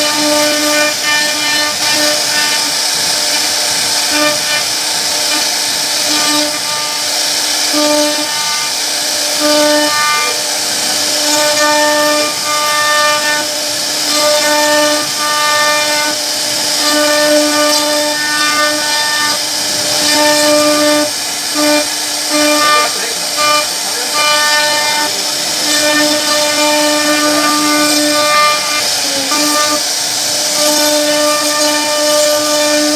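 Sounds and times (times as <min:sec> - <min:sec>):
low machine whine: 0:00.0 - 0:32.9
router spindle milling wood: 0:00.0 - 0:32.9.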